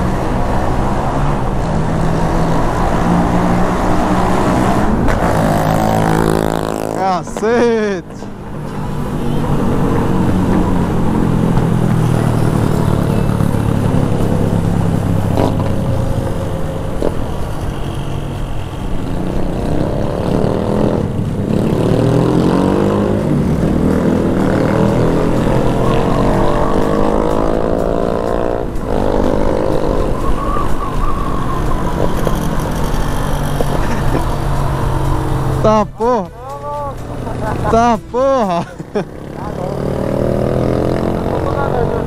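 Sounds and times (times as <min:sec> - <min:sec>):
motorcycle engine accelerating: 0:00.0 - 0:07.0, 0:31.8 - 0:35.8, 0:38.8 - 0:42.0.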